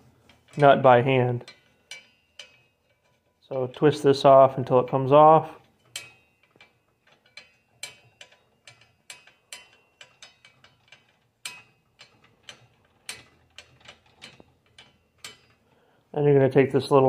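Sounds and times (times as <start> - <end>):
sharp metallic clicks: 0.0 - 15.8.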